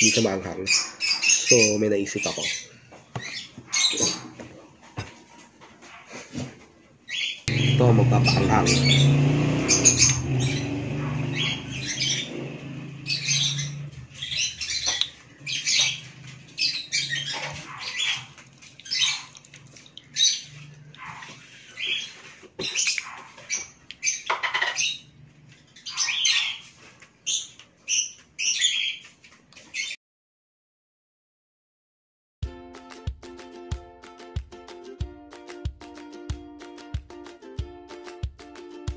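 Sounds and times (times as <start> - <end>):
bird squawking and chirping: 0.0 - 4.4, 7.1 - 29.1.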